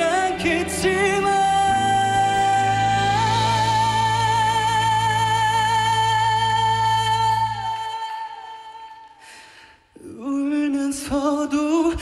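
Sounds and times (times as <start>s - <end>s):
backing band playing: 0.0s - 7.1s
man singing with vibrato: 0.0s - 12.0s
singer breathing: 9.1s - 10.0s.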